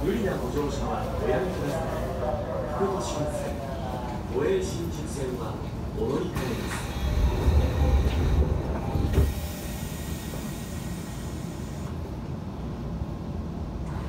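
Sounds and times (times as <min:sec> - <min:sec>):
low train rumble: 0:00.0 - 0:14.0
subway door knock: 0:06.4 - 0:10.8.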